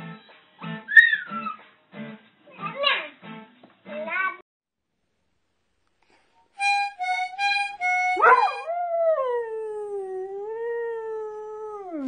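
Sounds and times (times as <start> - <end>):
harmonica notes: 6.6 - 8.7
dog howling: 8.0 - 12.0.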